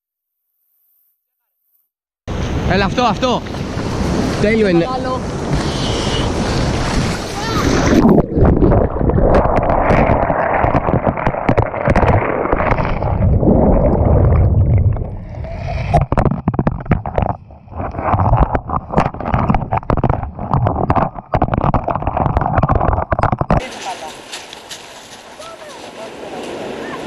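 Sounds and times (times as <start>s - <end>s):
muffled underwater wave rush: 2.3s - 27.0s
pebbles clattering underwater: 8.1s - 15.2s, 15.9s - 25.2s.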